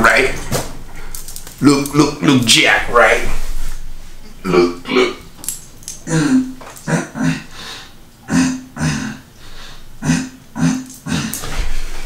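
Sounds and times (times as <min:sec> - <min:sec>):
man grunting: 0:04.4 - 0:05.2, 0:06.0 - 0:07.6, 0:08.3 - 0:09.3, 0:10.0 - 0:11.6.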